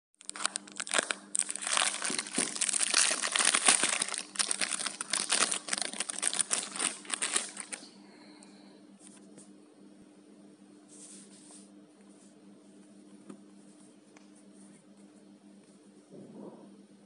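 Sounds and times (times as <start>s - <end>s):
plastic wrapping crinkling: 0.2s - 7.9s.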